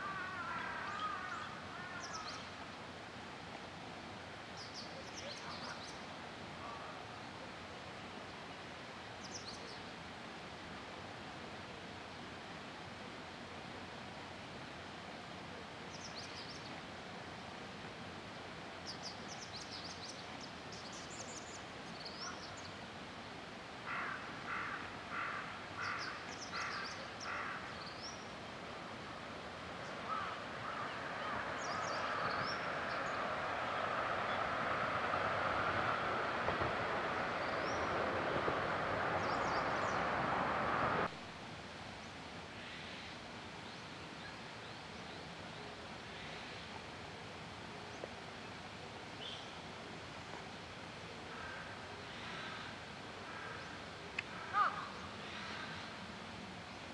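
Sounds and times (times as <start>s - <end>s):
harsh caw-like bird calls: 0.0s - 2.5s, 23.8s - 27.8s, 30.0s - 34.4s, 51.3s - 56.0s
rushing noise: 28.3s - 41.3s.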